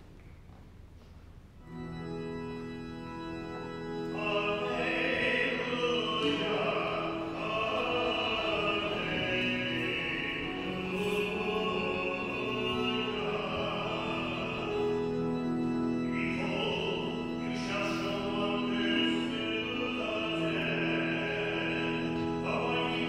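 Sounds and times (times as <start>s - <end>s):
church organ sustained chords: 1.6s - 23.0s.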